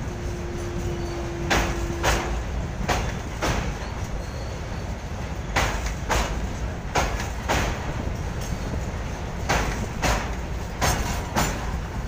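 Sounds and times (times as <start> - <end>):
train wheels rumbling on rail: 0.0 - 12.0
wheels clacking over rail joint: 0.0 - 12.0.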